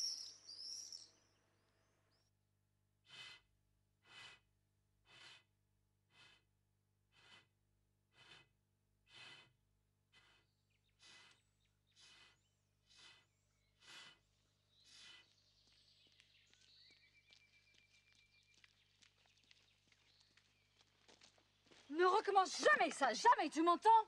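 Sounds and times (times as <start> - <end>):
bird trill: 0.0 - 1.3.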